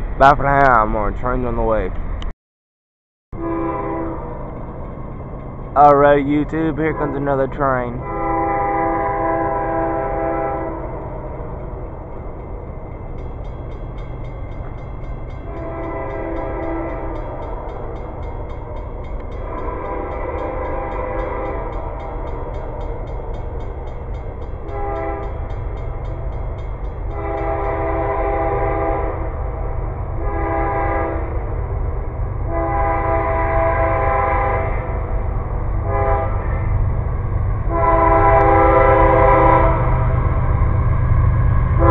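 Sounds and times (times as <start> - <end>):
low train rumble: 0.0 - 2.3, 3.3 - 41.9
train air horn blasts: 3.4 - 4.4, 6.8 - 11.0, 15.4 - 17.4, 19.4 - 22.0, 24.6 - 25.4, 27.1 - 29.4, 30.2 - 31.4, 32.5 - 35.0, 35.8 - 36.7, 37.7 - 40.2.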